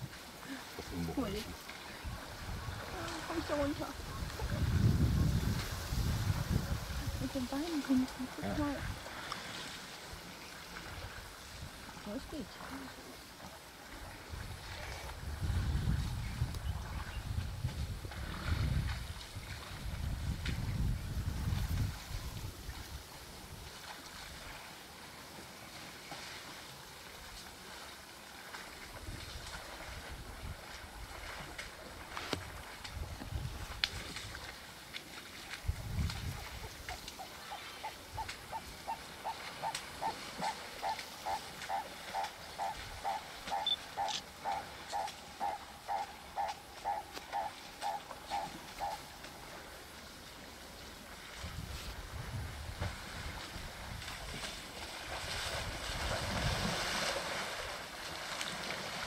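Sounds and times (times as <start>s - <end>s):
steady outdoor hiss: 0.0s - 59.0s
low wind rumble on microphone: 0.9s - 9.1s, 14.0s - 23.7s, 29.0s - 34.5s, 35.6s - 37.2s, 51.3s - 57.0s
animal call repeating: 37.2s - 49.1s.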